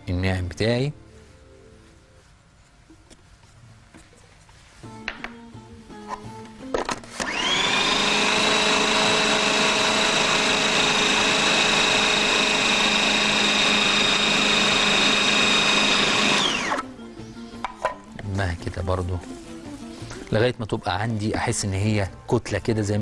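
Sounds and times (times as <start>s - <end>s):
food processor motor whining: 7.1s - 16.9s.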